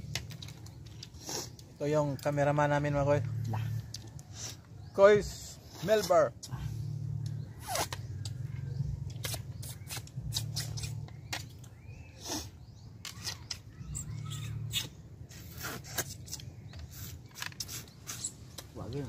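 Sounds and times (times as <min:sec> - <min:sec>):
people slurping snails: 0:00.4 - 0:01.8, 0:09.1 - 0:11.1, 0:14.7 - 0:18.8
low drone: 0:06.4 - 0:12.1.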